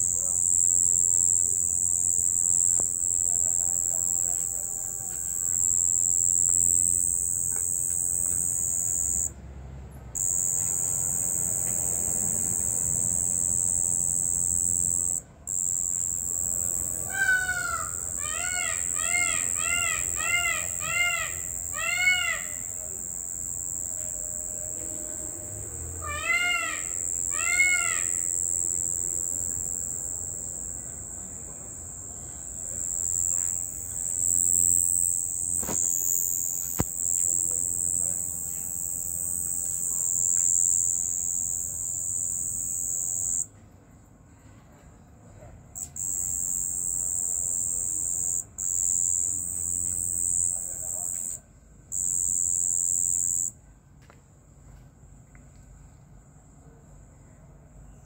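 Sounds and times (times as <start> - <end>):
crickets trilling: 0.0 - 43.5, 45.8 - 53.6
animal rising and falling calls: 26.0 - 29.6.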